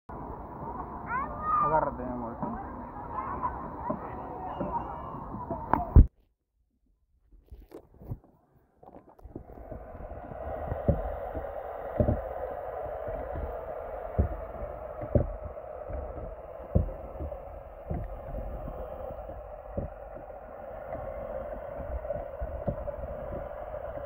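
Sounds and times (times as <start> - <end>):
soft low underwater thumps: 9.2 - 24.0
dull underwater hiss: 9.3 - 24.0.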